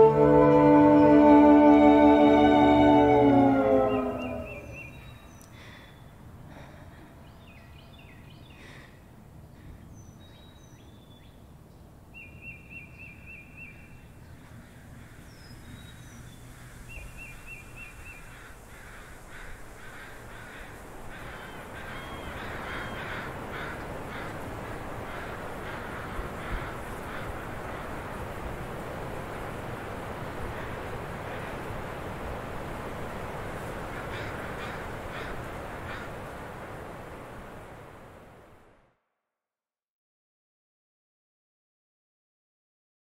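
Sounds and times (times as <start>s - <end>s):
birds chirping: 0.0s - 6.2s, 15.3s - 25.9s.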